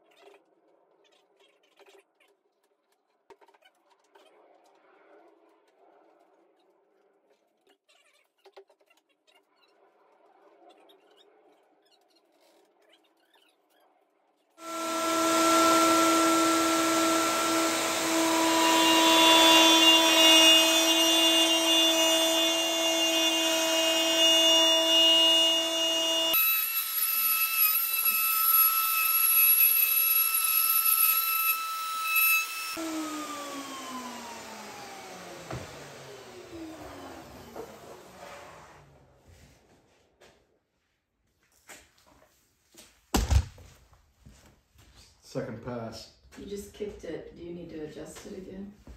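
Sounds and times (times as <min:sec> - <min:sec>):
router motor spinning down: 0:14.6 - 0:38.3
router whining while cutting wood: 0:14.6 - 0:38.9.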